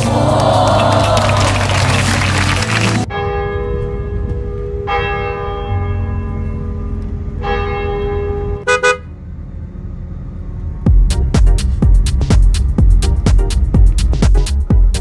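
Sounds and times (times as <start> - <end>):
bus rumble: 0.0 - 15.0
church bell tolling: 3.1 - 8.6.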